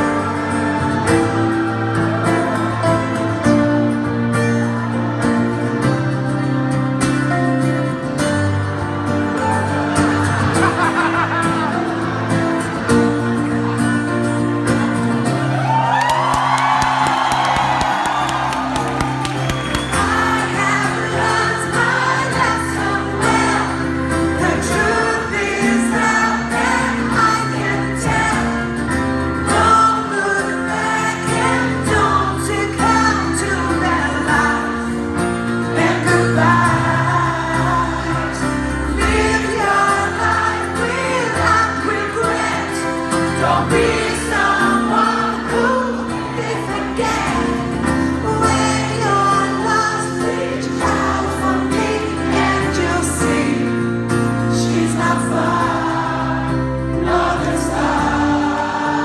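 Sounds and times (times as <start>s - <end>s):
woman singing pop song: 29.5s - 55.7s.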